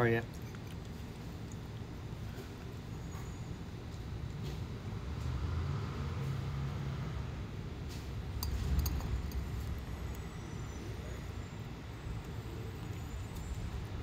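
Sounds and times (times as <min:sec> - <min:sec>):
low background rumble: 0:07.2 - 0:14.0.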